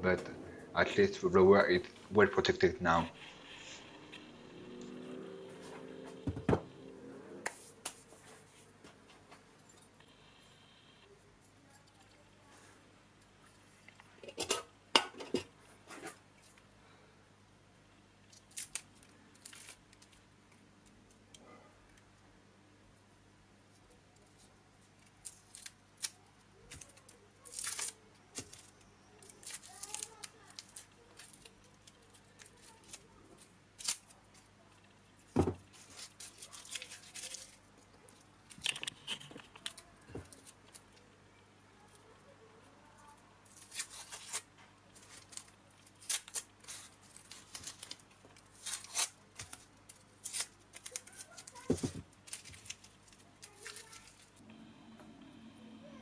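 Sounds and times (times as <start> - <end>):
tape crinkling and tearing: 18.2 - 20.2, 24.2 - 34.5, 35.7 - 41.0, 43.4 - 54.4.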